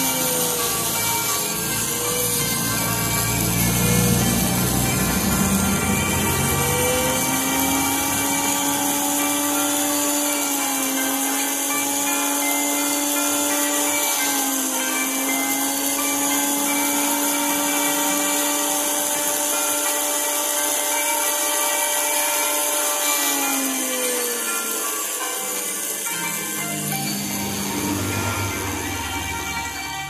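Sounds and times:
rotary tool grinding stone: 0.0 - 30.0.

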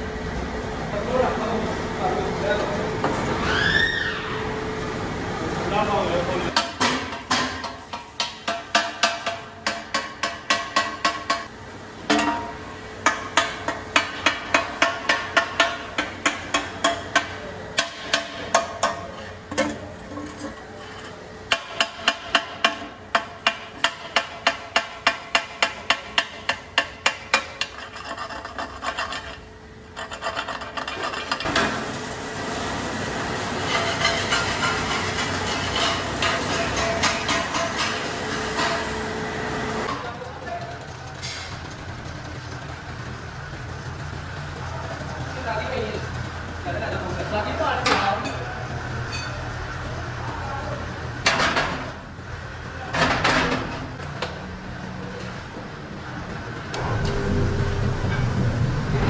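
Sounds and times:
hammer striking sheet steel: 6.5 - 11.5, 21.5 - 27.8, 33.7 - 39.0.

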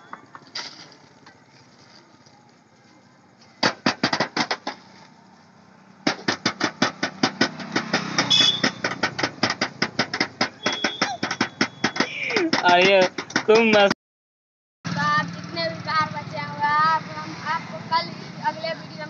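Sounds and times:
toy drum beaten rapidly: 6.1 - 13.9.

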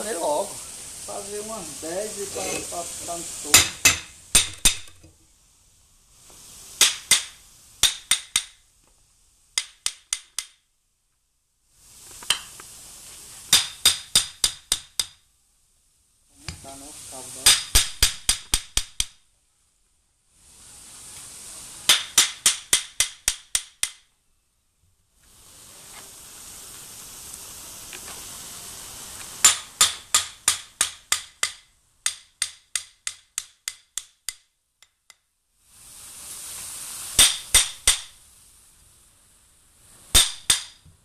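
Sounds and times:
steady hiss: 0.0 - 41.0
hammer striking metal: 3.5 - 4.8.

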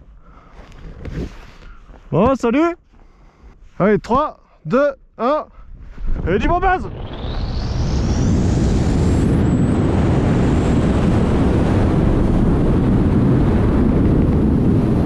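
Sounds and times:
freefall wind buffeting microphone: 5.3 - 15.0
thin rising whistle: 6.8 - 10.5.

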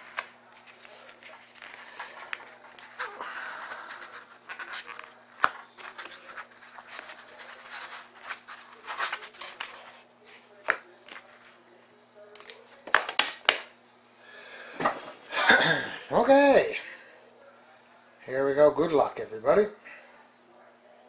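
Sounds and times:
cardboard scraping and rubbing: 5.8 - 10.5.

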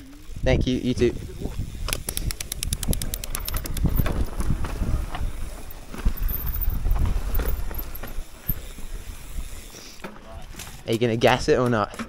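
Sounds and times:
wind buffeting microphone: 0.3 - 9.7
even ticks: 1.9 - 4.1.

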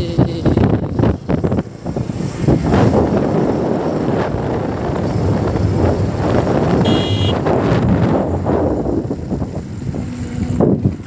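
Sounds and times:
road noise: 0.0 - 11.0
wind buffeting microphone: 0.0 - 11.0
motorbike engine: 0.8 - 11.0
high-pitched buzz: 6.8 - 7.4.

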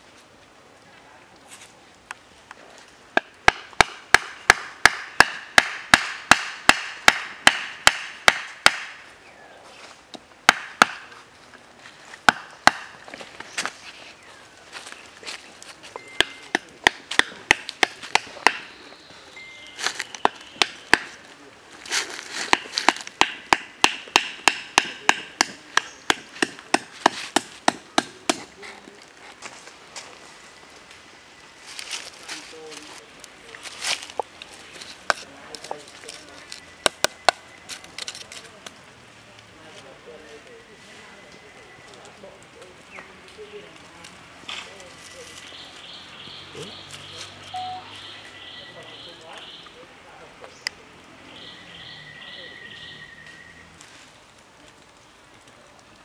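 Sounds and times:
knife chopping into wood: 22.5 - 28.5.

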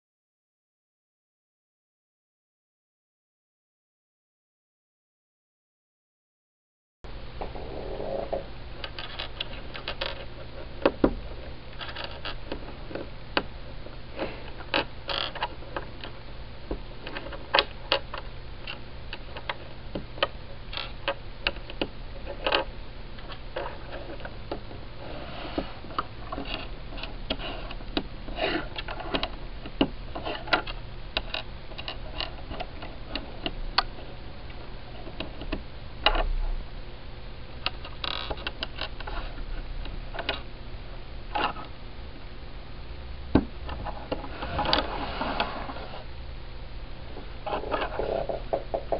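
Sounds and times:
low hum: 7.1 - 48.9.

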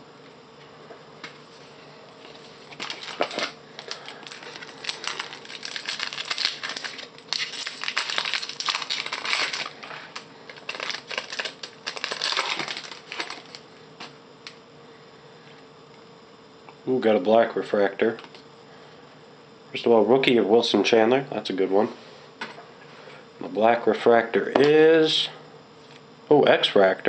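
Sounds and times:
wrapper crinkling and tearing: 2.7 - 13.6.

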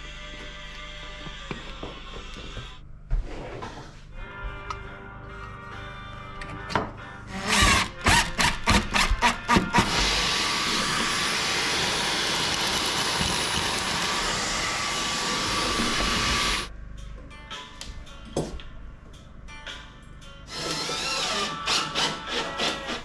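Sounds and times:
handheld vacuum cleaner running: 9.9 - 16.7.

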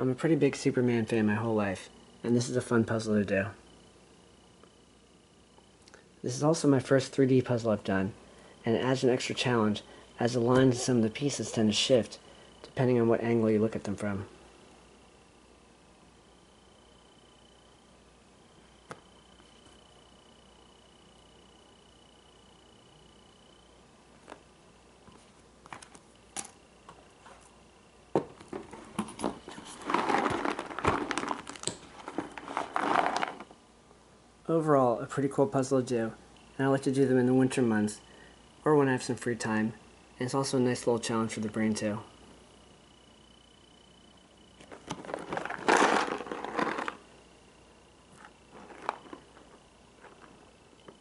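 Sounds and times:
cardboard box crinkling and rustling: 28.5 - 33.5, 44.7 - 47.0, 48.5 - 50.3
puzzle pieces clicking and tapping: 44.7 - 47.0.

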